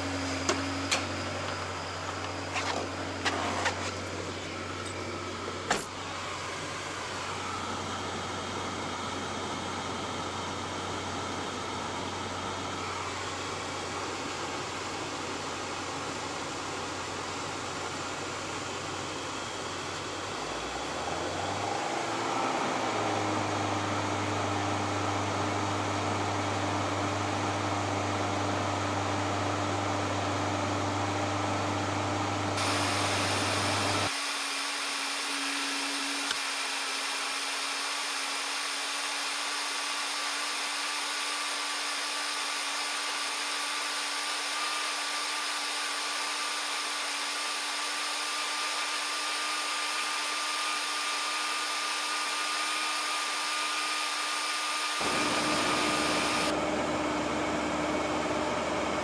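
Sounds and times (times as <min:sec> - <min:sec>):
air-conditioning blower: 0:00.0 - 0:59.0
car engine idling: 0:04.0 - 0:21.1, 0:55.0 - 0:57.0
high-pitched whir: 0:32.6 - 0:56.9.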